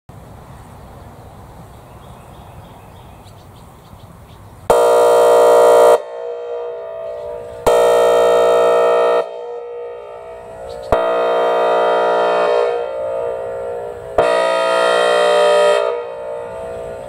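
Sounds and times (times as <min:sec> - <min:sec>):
outdoor background noise: 0:00.1 - 0:17.0
siren air horn blasts: 0:04.7 - 0:17.0.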